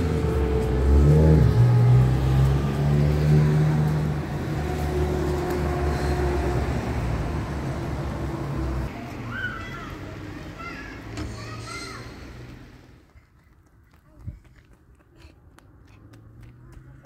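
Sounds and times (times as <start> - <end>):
vehicle engine running: 0.0 - 9.1.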